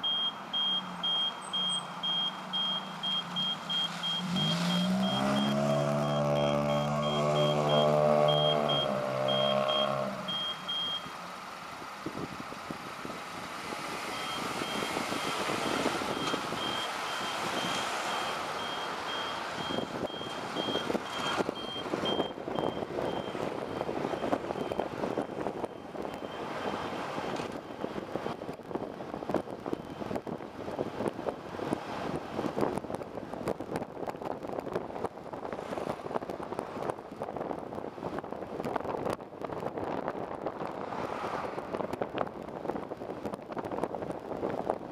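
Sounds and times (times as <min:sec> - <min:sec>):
high electronic beeps: 0:00.0 - 0:11.1, 0:16.1 - 0:24.9
bus engine: 0:00.0 - 0:44.9
road noise and rattle: 0:00.0 - 0:44.9.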